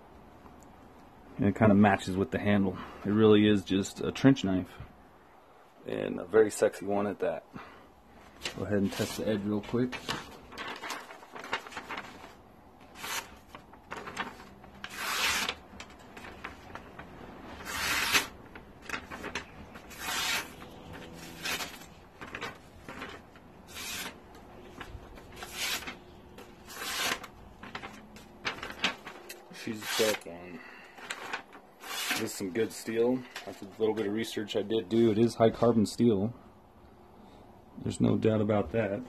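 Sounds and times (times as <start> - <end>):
knife slicing paper: 12.9 - 15.6, 17.6 - 23.0, 23.7 - 24.2, 25.3 - 26.0, 26.6 - 28.0, 31.2 - 32.4.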